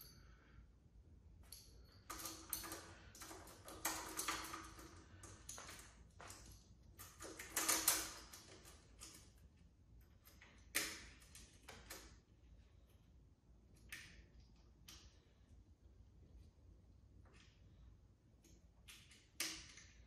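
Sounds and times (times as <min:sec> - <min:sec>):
small metal parts clicking: 0:01.4 - 0:12.1.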